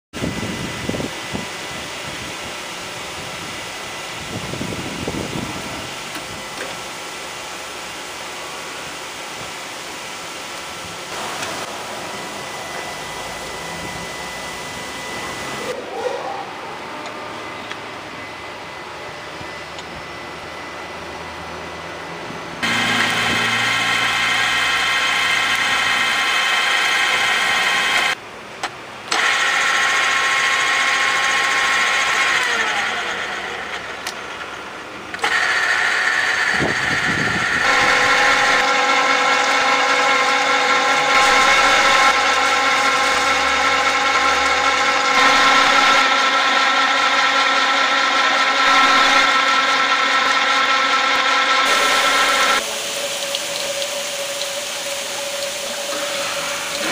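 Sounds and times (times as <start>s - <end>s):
drill press motor whine: 0.2s - 28.2s, 29.0s - 56.9s
drill cutting into metal: 22.6s - 28.2s, 29.1s - 34.5s, 35.1s - 56.9s.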